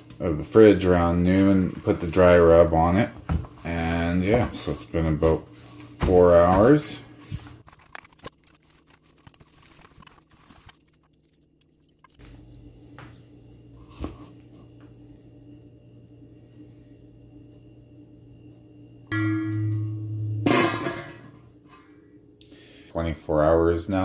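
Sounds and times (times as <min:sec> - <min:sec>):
metal lid ringing and clanking: 0:19.1 - 0:21.3.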